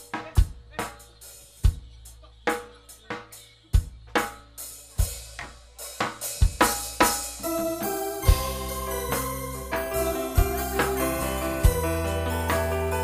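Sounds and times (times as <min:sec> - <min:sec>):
drum kit playing: 0:00.0 - 0:13.0
sustained keyboard chords: 0:07.4 - 0:13.0.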